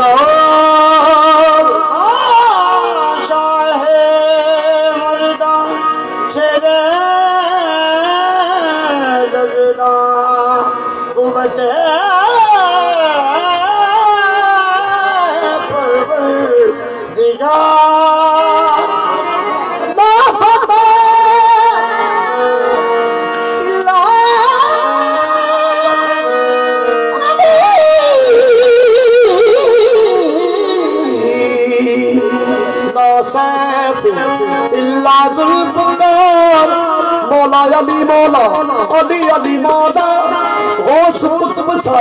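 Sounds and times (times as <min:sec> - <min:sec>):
harmonium chords: 0:00.0 - 0:42.0
man singing wavering vocal line: 0:27.3 - 0:42.0.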